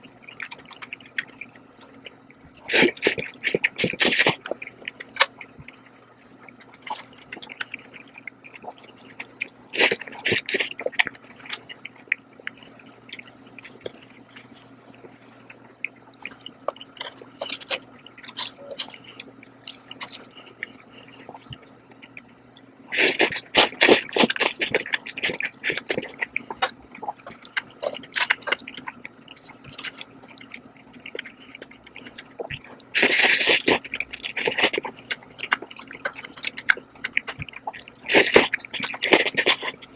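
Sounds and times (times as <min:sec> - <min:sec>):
wet chewing and lip smacks: 0:00.0 - 0:39.9
loud noodle slurps: 0:22.9 - 0:26.0, 0:33.0 - 0:34.8, 0:38.0 - 0:39.7.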